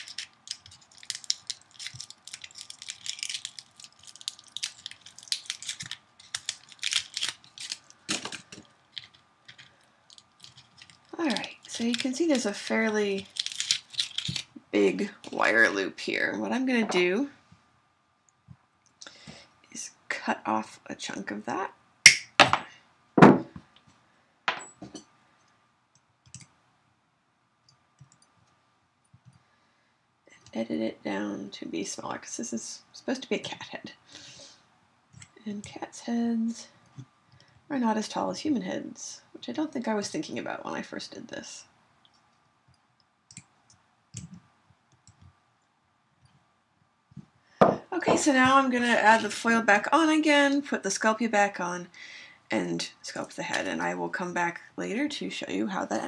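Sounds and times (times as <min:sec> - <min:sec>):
aluminum foil crinkling: 0:00.0 - 0:14.6.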